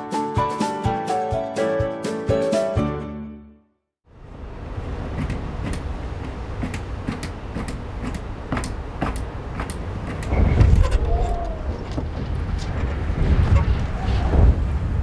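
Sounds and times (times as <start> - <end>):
wind buffeting microphone: 4.6 - 15.0.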